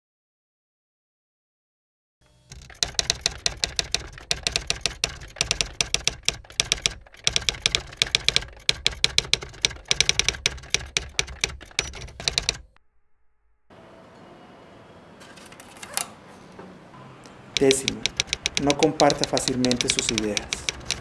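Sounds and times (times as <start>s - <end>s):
typewriter keys striking: 2.5s - 12.8s, 17.5s - 21.0s.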